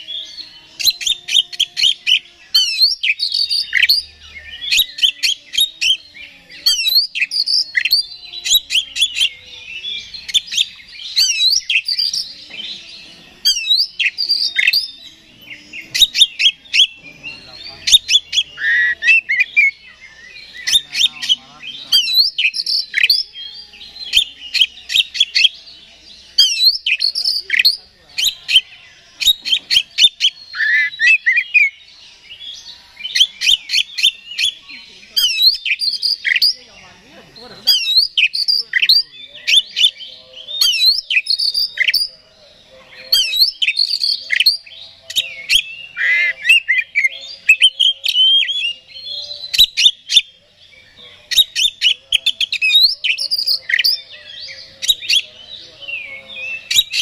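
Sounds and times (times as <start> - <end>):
bird singing whistles and clicks: 40.6 - 42.1.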